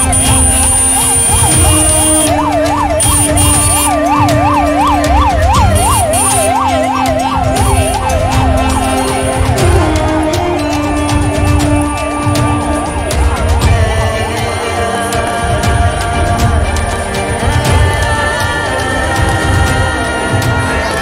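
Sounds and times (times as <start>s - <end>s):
fast yelping siren: 0.0s - 13.4s
dense crowd noise: 0.0s - 21.0s.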